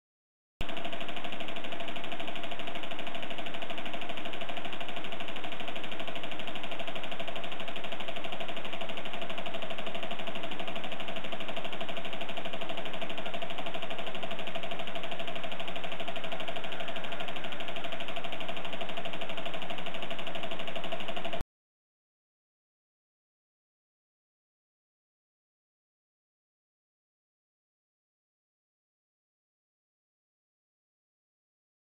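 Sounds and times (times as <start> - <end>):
model engine running: 0.6 - 21.4.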